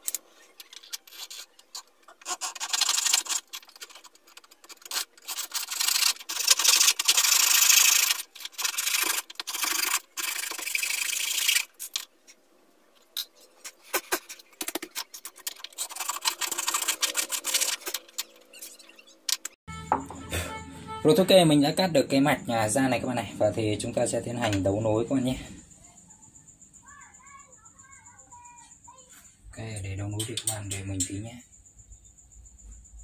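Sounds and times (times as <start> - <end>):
circuit board being cut by hand: 0.0 - 12.0, 13.8 - 19.6.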